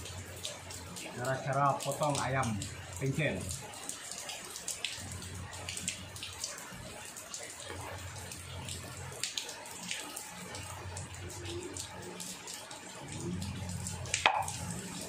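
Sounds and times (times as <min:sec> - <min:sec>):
low steady hum: 0:07.7 - 0:15.0.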